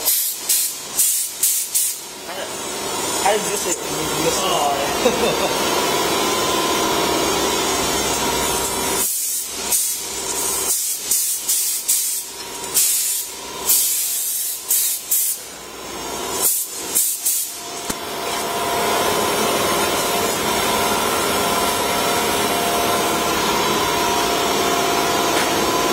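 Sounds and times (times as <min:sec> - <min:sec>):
short sharp air hisses: 0:00.0 - 0:02.0, 0:09.0 - 0:15.4, 0:16.4 - 0:17.6
cnc router running with faint whine: 0:02.1 - 0:09.0, 0:17.6 - 0:25.9.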